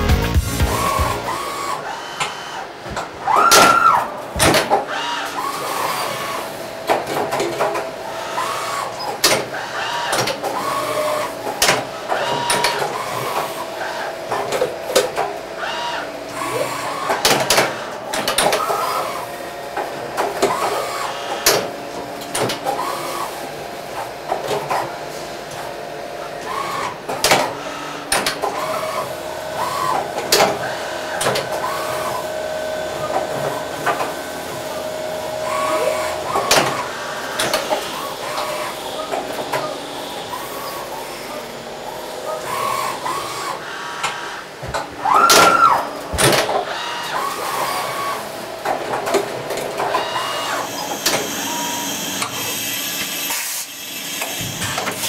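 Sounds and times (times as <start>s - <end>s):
machine whines rising and falling: 0.0s - 4.2s
steady machine hum: 0.0s - 9.0s.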